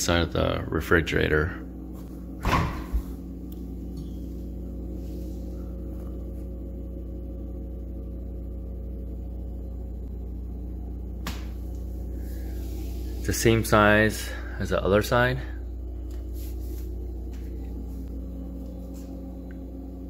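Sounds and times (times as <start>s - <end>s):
fridge-freezer humming: 0.0s - 20.0s
refrigerator door opening: 2.4s - 3.1s.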